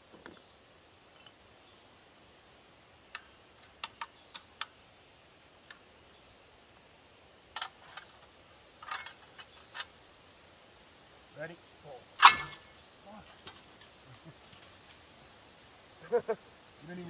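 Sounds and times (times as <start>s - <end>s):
insect chirping: 0.0s - 17.0s.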